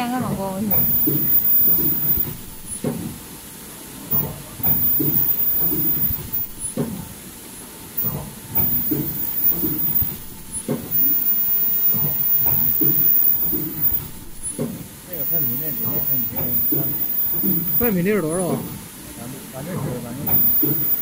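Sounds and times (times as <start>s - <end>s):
production machine air hiss and knocks: 0.0s - 21.0s
high-pitched whine: 8.0s - 18.8s.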